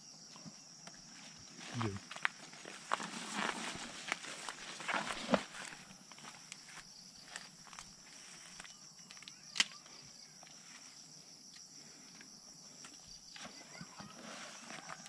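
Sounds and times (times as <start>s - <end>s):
insect chirring: 0.0s - 15.0s
small clicks and rustles: 4.0s - 10.6s.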